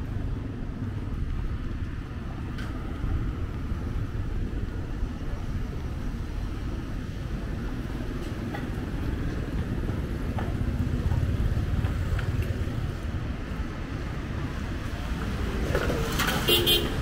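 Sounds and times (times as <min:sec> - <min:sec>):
motor scooters passing: 0:14.5 - 0:17.0.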